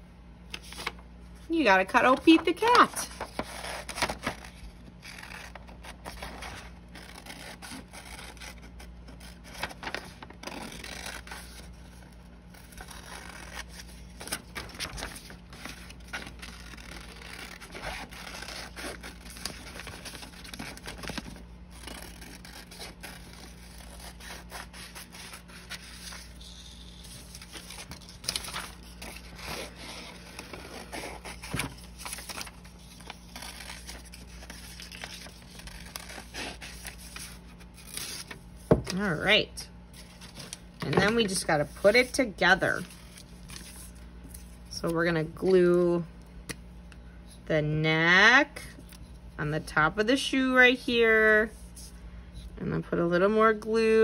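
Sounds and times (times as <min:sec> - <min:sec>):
paper rustling: 0:00.5 - 0:01.0, 0:02.0 - 0:39.2, 0:39.9 - 0:44.6.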